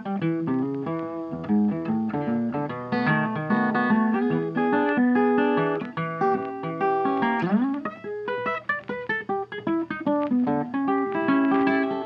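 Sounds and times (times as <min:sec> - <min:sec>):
plucked guitar music: 0:00.0 - 0:12.0.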